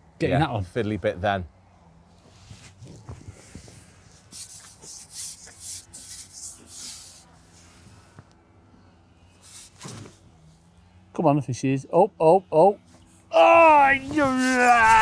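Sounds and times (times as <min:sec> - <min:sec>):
fishing pole rubbing through hands: 0:02.2 - 0:08.2, 0:09.3 - 0:10.5, 0:14.1 - 0:15.0.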